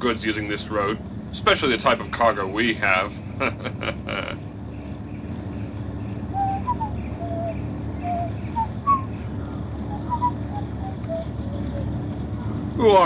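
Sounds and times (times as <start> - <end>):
truck engine humming: 0.0 - 13.0
short bird calls: 4.6 - 13.0.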